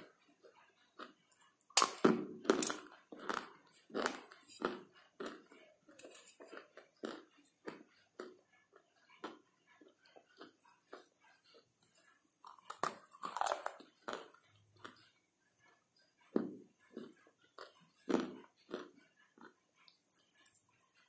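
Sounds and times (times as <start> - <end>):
slate being chewed crunching: 0.0 - 8.4, 10.1 - 15.1, 16.4 - 21.0.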